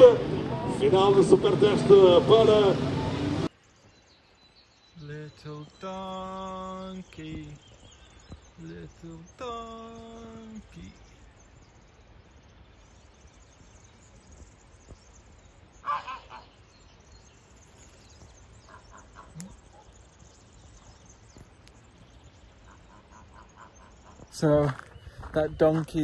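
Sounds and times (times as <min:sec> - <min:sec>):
short animal calls: 0:15.8 - 0:16.5, 0:18.7 - 0:19.9.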